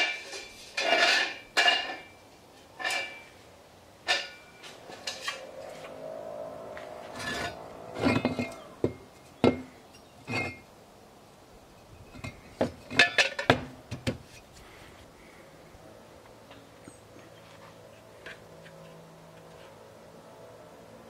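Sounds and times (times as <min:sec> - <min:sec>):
steel tubes clinking together: 0:00.0 - 0:02.1, 0:02.8 - 0:03.3, 0:04.0 - 0:05.5, 0:07.2 - 0:10.7, 0:12.1 - 0:13.5.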